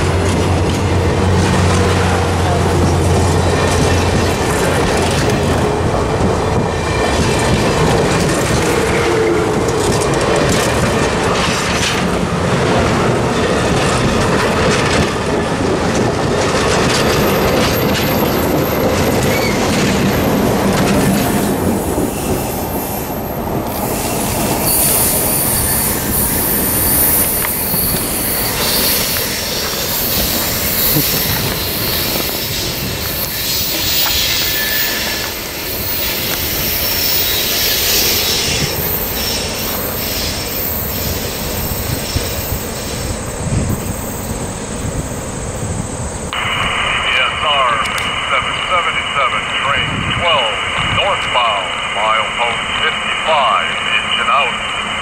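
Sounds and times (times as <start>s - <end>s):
train wheels rumbling on rail: 0.0s - 55.0s
high-pitched wheel squeal: 18.1s - 20.3s, 22.2s - 42.6s.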